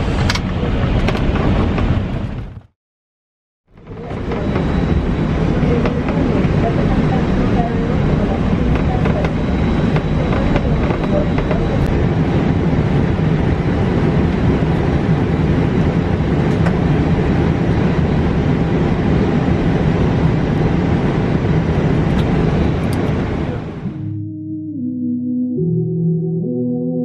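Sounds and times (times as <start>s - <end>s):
aircraft cabin rumble and hiss: 0.0s - 2.6s, 3.8s - 24.0s
faint high whine: 3.8s - 14.4s.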